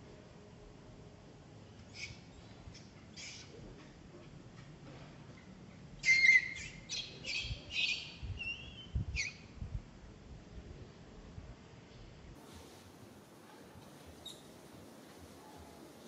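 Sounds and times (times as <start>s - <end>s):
baby monkey shrill squeals: 6.0s - 9.4s.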